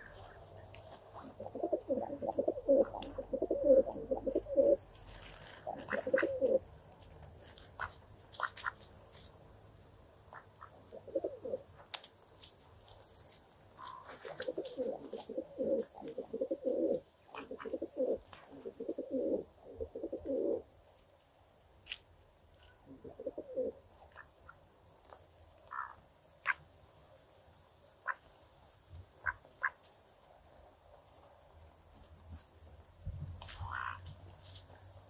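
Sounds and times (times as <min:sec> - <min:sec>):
pigeons cooing: 0:01.1 - 0:06.7, 0:10.6 - 0:11.7, 0:13.8 - 0:20.6, 0:22.9 - 0:23.8.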